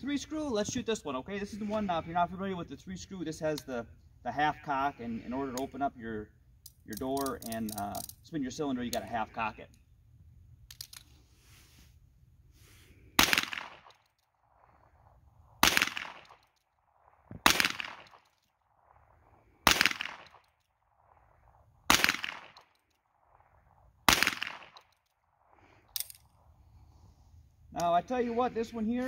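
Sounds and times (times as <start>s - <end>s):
revolver shots: 15.6s - 16.4s.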